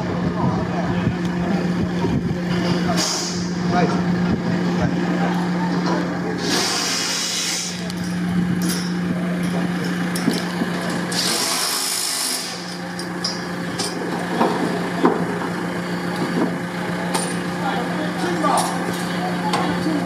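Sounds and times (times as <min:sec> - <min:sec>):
heavy vehicle engine humming: 0:00.0 - 0:20.0
loud hissing: 0:06.4 - 0:07.9.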